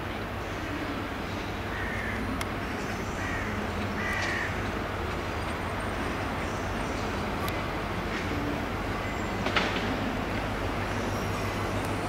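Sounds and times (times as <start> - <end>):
train rumbling: 0.0 - 12.0
bird calling: 1.7 - 4.6.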